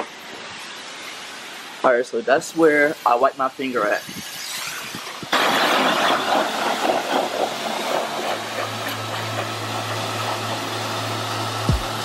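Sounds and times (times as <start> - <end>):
pressure washer spray hissing: 0.0 - 12.0
pressure washer motor humming: 4.1 - 12.0.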